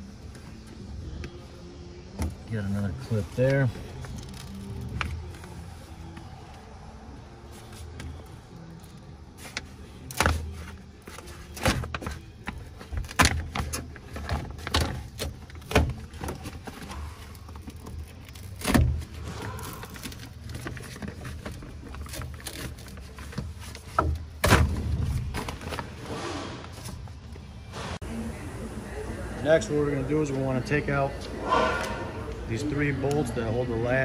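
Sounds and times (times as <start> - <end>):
plastic covering crinkling and crackling: 9.4 - 24.0.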